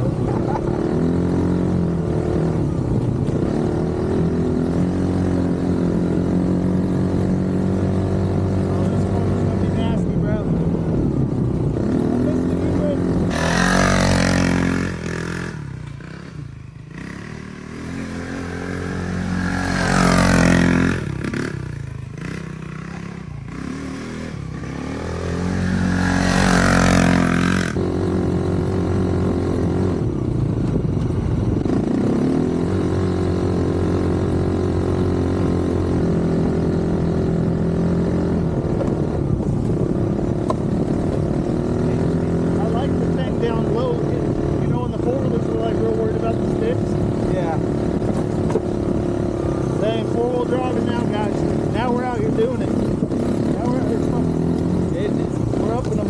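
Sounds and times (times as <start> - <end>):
small engine revving: 11.5 - 56.0.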